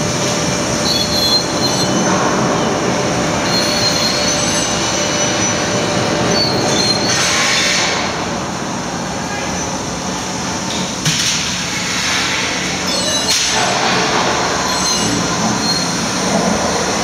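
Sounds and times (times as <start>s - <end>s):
thin high squeals: 3.4s - 7.2s, 14.6s - 16.0s.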